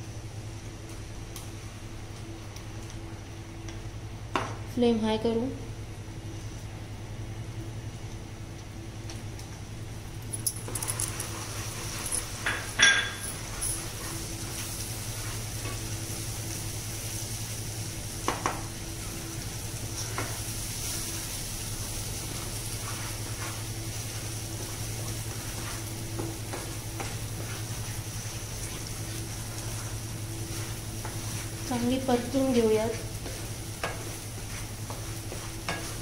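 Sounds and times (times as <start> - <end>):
steady low hum: 0.0 - 36.0
gravy sizzling in butter: 10.8 - 36.0
ladle stirring and scraping pan: 22.2 - 36.0.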